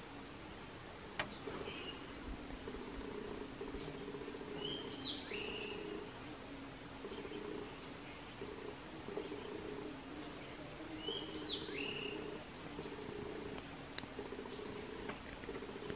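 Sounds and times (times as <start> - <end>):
bird whistled call: 11.0 - 12.2.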